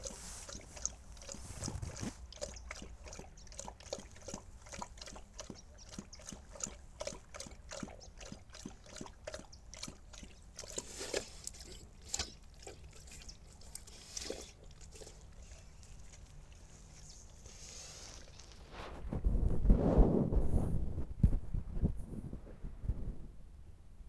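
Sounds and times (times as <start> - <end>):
dog lapping water: 0.0 - 18.8.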